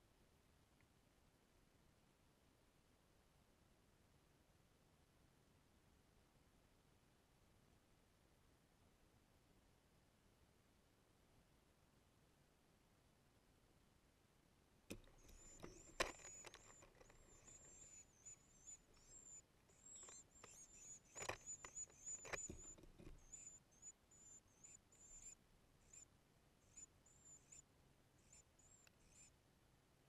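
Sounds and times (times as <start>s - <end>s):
nestlings chirping: 14.9s - 27.6s, 28.2s - 29.3s.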